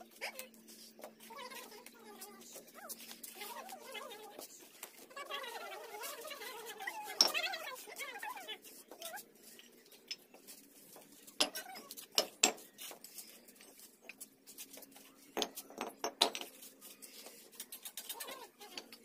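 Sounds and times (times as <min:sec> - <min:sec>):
bricks clinking and knocking: 0:11.4 - 0:12.7, 0:15.4 - 0:16.5.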